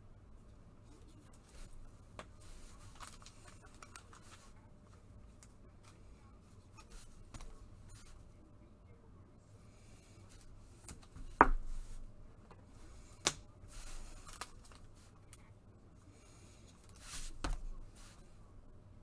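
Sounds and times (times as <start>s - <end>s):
cards rustling: 1.3s - 4.5s, 13.0s - 15.4s.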